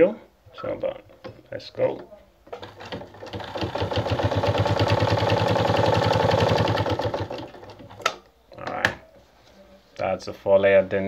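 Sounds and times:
sewing machine stitching: 2.5 - 8.0.

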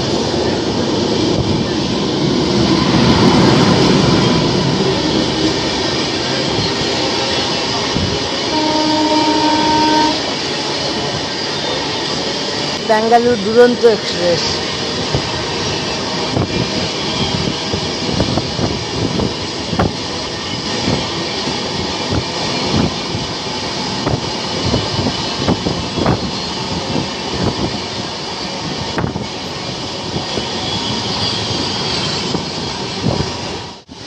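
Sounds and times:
passing train coaches rumbling: 0.0 - 34.0
wind and running noise: 14.6 - 34.0.

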